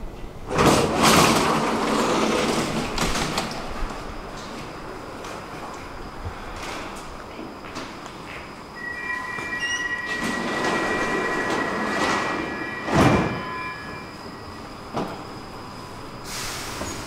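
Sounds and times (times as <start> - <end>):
train high squeal: 7.8 - 17.0.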